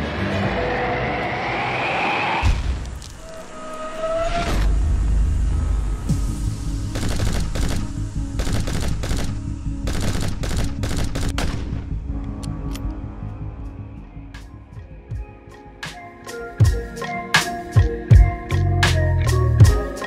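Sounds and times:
background music with bass line: 0:05.0 - 0:20.0
automatic gunfire bursts: 0:08.4 - 0:11.4.

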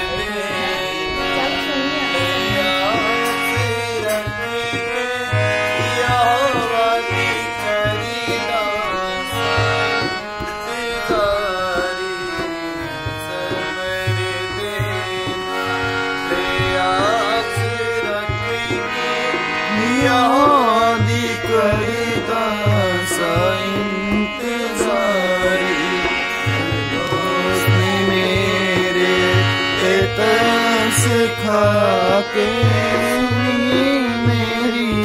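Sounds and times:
harmonium chords: 0:00.0 - 0:35.0
man singing: 0:00.0 - 0:35.0
hand drum beat: 0:26.6 - 0:29.2.

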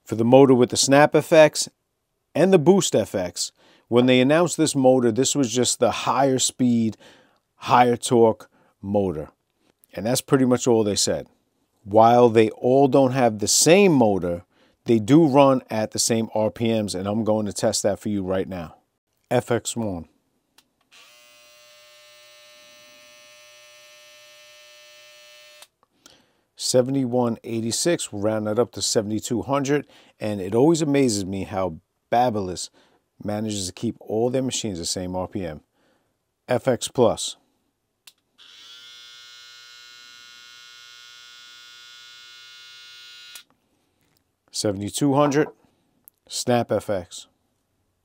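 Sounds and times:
hair trimmer motor buzzing: 0:20.9 - 0:25.7, 0:38.4 - 0:43.4.

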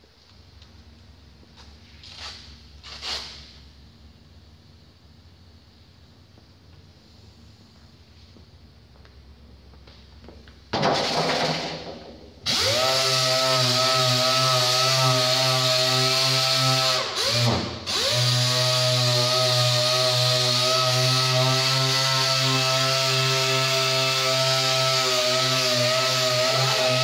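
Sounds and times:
air-powered sander running: 0:12.4 - 0:27.0.

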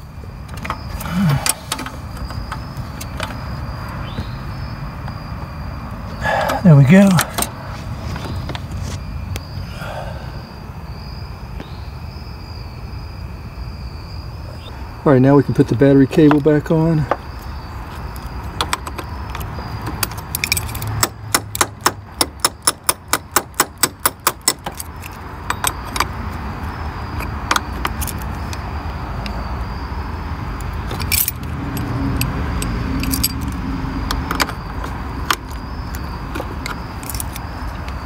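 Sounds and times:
wrench clinking on battery terminal: 0:18.6 - 0:26.1, 0:30.9 - 0:33.6, 0:34.2 - 0:37.5.

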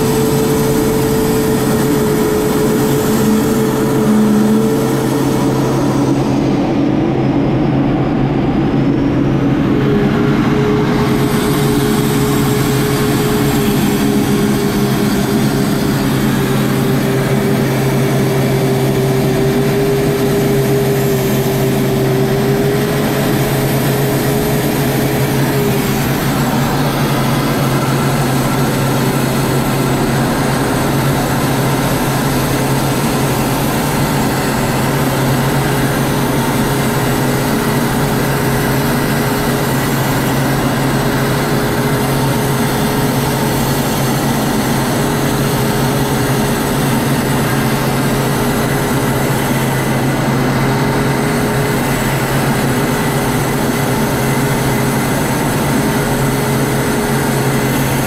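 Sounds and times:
jet engine drone: 0:00.0 - 0:58.0
low hum: 0:00.0 - 0:58.0
rushing air: 0:00.0 - 0:58.0.

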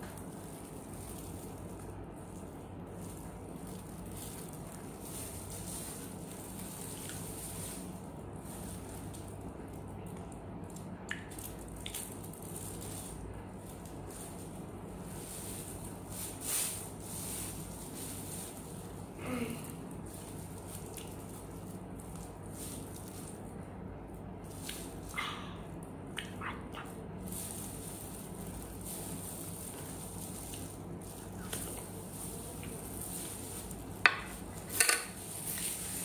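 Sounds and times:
low room hum: 0:00.0 - 0:36.0
plastic gloves rustling: 0:00.0 - 0:36.0
eating noises: 0:25.0 - 0:27.3.

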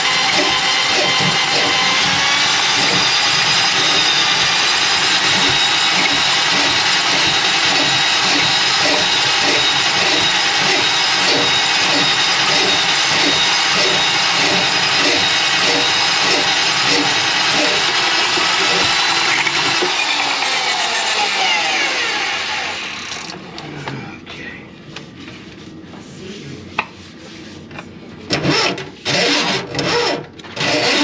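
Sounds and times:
drain-cleaning machine running: 0:00.0 - 0:23.6.

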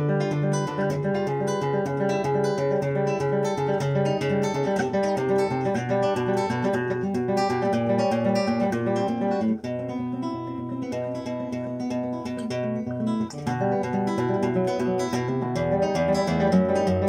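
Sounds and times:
classical guitar playing: 0:00.0 - 0:17.0.

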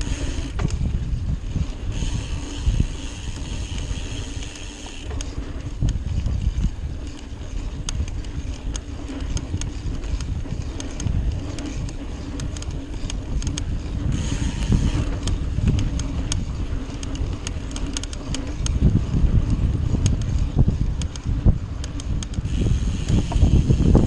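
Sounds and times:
bike rattles and clicks: 0:00.0 - 0:24.0
bike tyres rumbling on dirt: 0:00.0 - 0:24.0.

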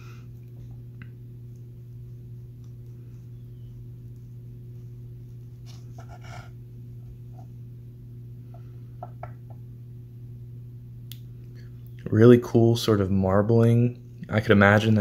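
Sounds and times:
steady low hum: 0:00.0 - 0:15.0
knife scraping: 0:05.5 - 0:06.6.

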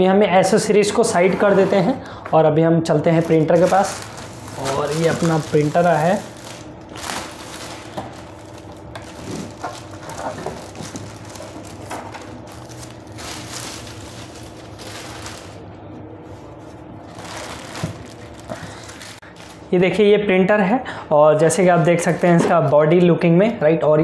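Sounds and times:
plastic bag crinkling: 0:03.0 - 0:15.7, 0:16.4 - 0:19.9, 0:21.6 - 0:23.0.

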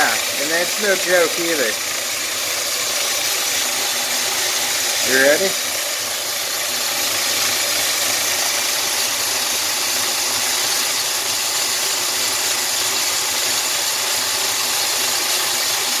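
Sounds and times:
metal lathe running: 0:00.0 - 0:16.0.

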